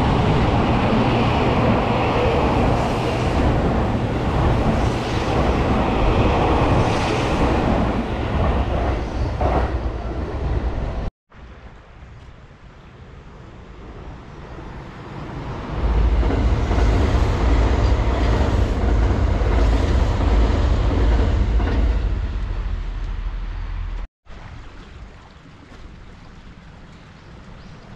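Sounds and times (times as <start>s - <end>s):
train rushing past at speed: 0.0s - 11.1s, 13.8s - 24.0s.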